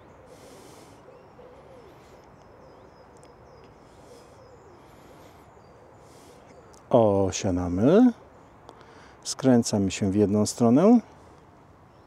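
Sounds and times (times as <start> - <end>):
dove cooing: 0.0 - 6.7.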